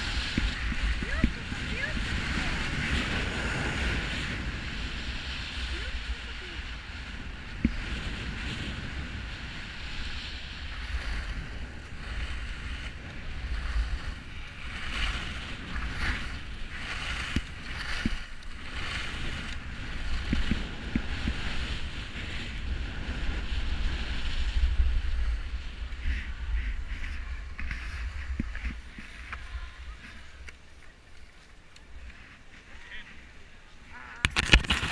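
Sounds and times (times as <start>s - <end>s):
skis scraping over snow: 0.0s - 34.9s
wind rumble on microphone: 0.0s - 34.9s.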